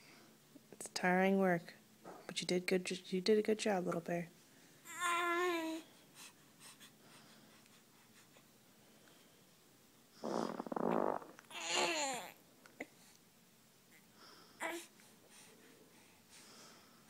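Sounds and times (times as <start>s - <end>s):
baby farting: 10.2s - 12.3s
baby grunting: 10.5s - 12.4s.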